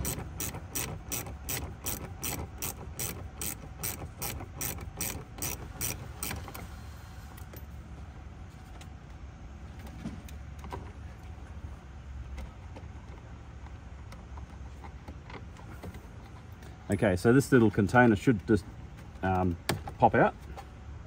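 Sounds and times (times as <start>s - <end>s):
ratchet wrench clicking: 0.0s - 6.6s.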